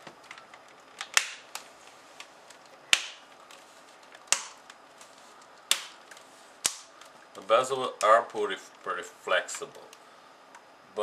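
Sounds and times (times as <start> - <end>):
plastic clips snapping loose: 0.2 - 1.7, 4.2 - 4.8.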